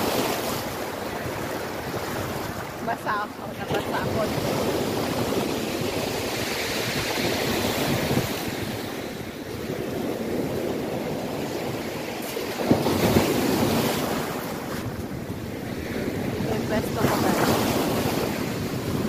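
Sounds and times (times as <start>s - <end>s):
wind buffeting microphone: 0.0s - 19.0s
waves breaking on shingle: 9.6s - 19.0s.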